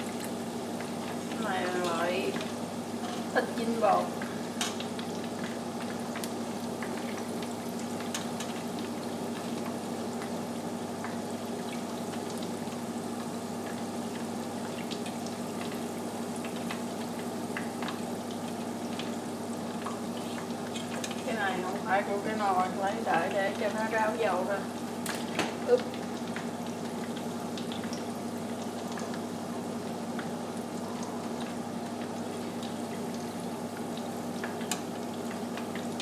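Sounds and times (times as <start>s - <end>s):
oil sizzling and crackling: 0.0s - 36.0s.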